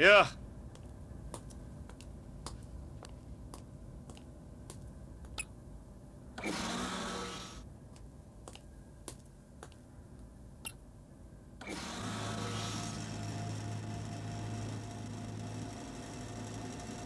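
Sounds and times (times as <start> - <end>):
sliding door hissing whoosh: 6.4 - 7.6, 11.6 - 13.6
low hum: 9.9 - 17.0.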